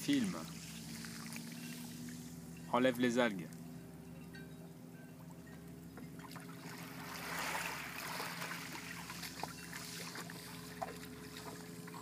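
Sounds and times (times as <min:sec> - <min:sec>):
seawater splashing and trickling: 0:00.0 - 0:02.6, 0:06.1 - 0:12.0
steady low hum: 0:00.0 - 0:12.0.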